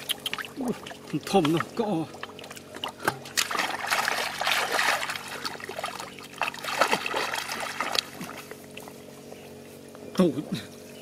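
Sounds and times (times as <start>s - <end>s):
splashing in shallow muddy water: 0.0s - 9.2s.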